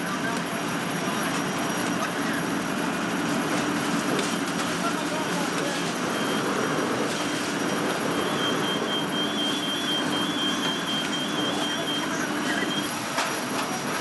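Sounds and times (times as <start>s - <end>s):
machinery roaring: 0.0s - 14.0s
rapid high electronic beeping: 6.1s - 6.8s, 7.5s - 13.0s.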